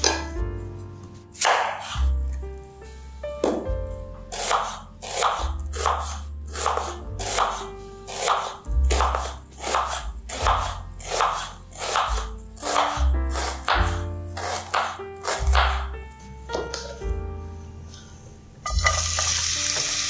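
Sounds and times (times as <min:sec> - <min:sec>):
background music with bass: 0:00.0 - 0:01.4, 0:11.6 - 0:14.4
knife slicing onion on board: 0:01.3 - 0:02.2, 0:04.3 - 0:15.9.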